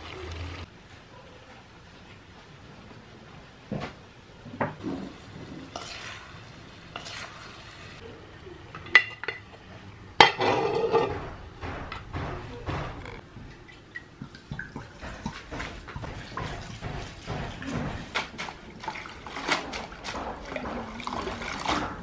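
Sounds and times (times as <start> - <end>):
utensils knocking on pots: 10.2 - 13.2, 14.2 - 22.0.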